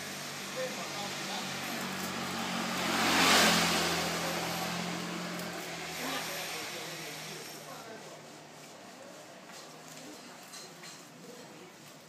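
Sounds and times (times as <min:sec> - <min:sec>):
vehicle driving past: 0:00.0 - 0:07.9.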